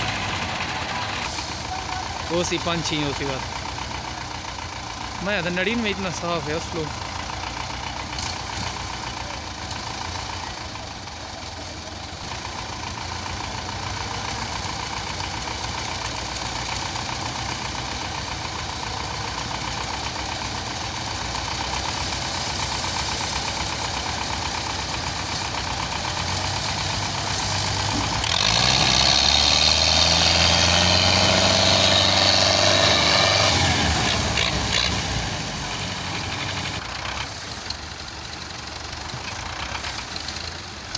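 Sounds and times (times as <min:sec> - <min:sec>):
diesel tractor engines clattering: 0:00.0 - 0:40.9.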